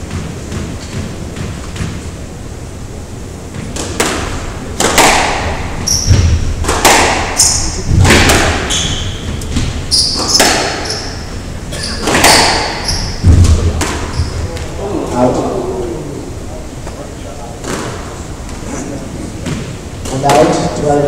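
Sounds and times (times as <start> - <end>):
squash ball hitting racquets and walls: 0.0 - 2.3, 3.4 - 14.8, 17.6 - 18.6, 19.3 - 20.9
shoes squeaking on wooden floor: 5.8 - 6.4, 8.7 - 14.8.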